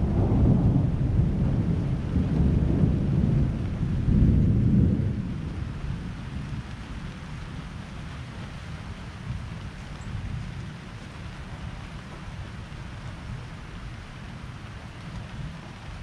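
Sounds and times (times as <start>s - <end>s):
thunder rumbling: 0.0s - 7.8s
steady rain: 0.0s - 16.0s.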